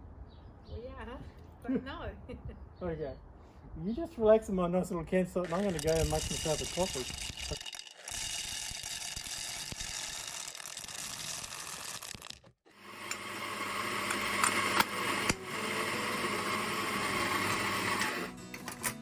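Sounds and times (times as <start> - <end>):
coffee grinder grinding beans: 5.4 - 18.4.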